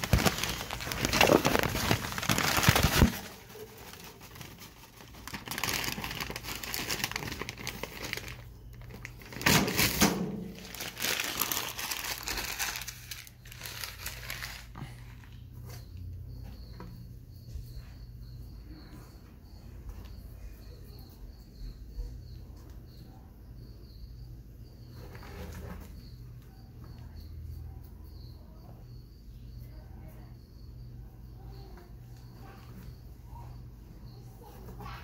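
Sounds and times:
rustling and crinkling handling: 0.0 - 15.9.

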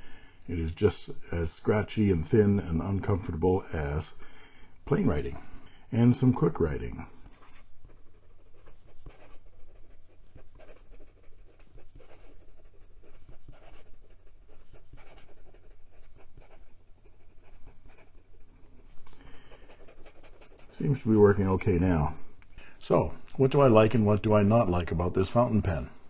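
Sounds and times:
pen nib scratching on paper: 7.2 - 21.1.

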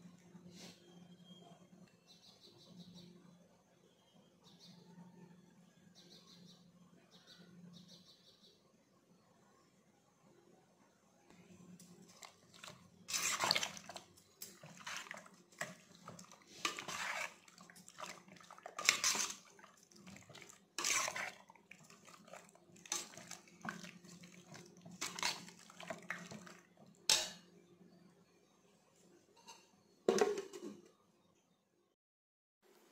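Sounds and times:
spoon squelching in wet marinade: 11.8 - 26.6.

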